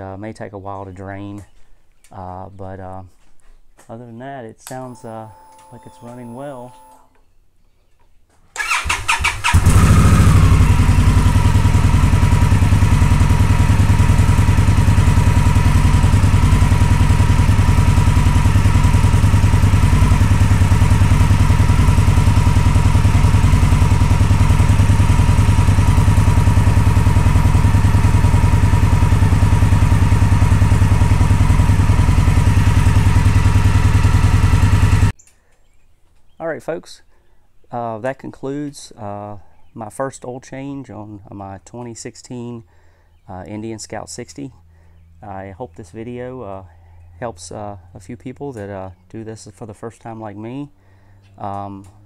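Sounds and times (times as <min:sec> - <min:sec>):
motorcycle starter cranking: 0:08.6 - 0:11.8
motorcycle engine idling: 0:08.6 - 0:35.1.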